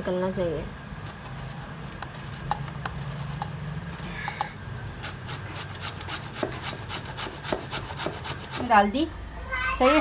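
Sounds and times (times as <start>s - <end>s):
gourd grating on metal grater: 5.0s - 9.0s.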